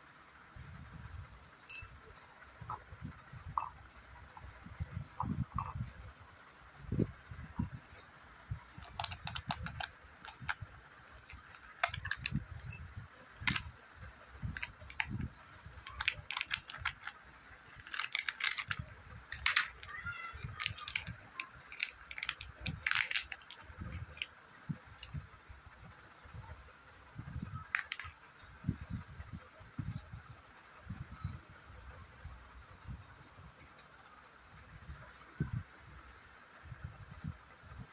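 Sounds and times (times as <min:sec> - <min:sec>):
plastic packaging crackling: 0:08.8 - 0:12.8, 0:13.4 - 0:13.7, 0:14.5 - 0:24.3, 0:27.7 - 0:28.1.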